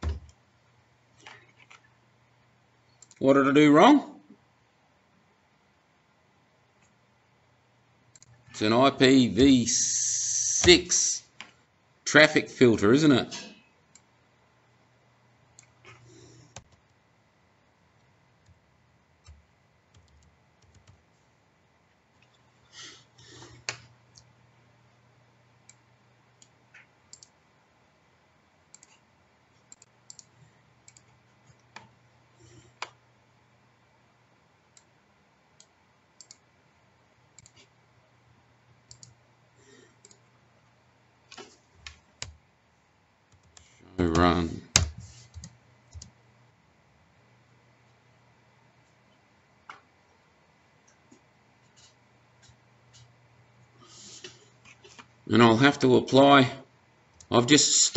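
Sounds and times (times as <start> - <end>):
low steady hum: 0.0 - 57.9
mouse and keyboard clicks: 28.7 - 29.0.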